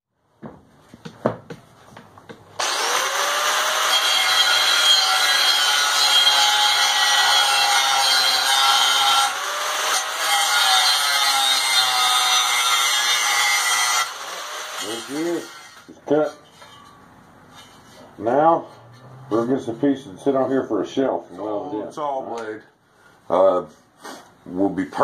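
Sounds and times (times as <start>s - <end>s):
angle grinder cutting steel: 2.6s - 16.9s.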